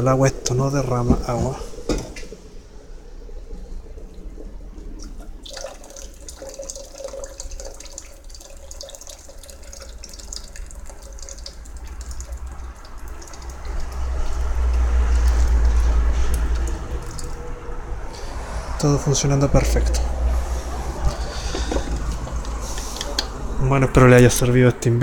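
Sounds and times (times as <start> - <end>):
water pouring into pot: 0.0 - 23.3.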